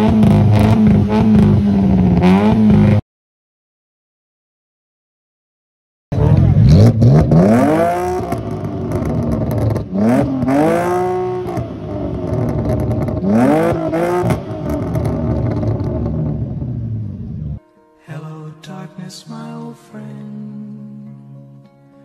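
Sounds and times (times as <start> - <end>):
car engine revving: 0.0 - 3.0, 6.2 - 17.6.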